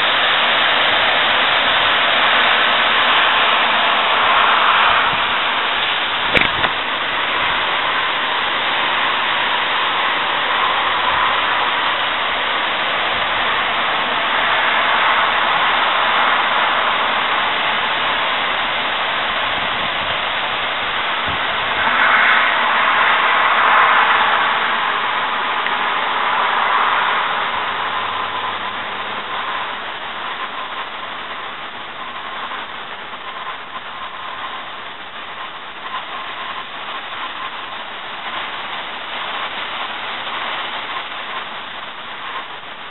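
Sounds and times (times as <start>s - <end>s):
gusty wind rushing through trees: 0.0s - 42.9s.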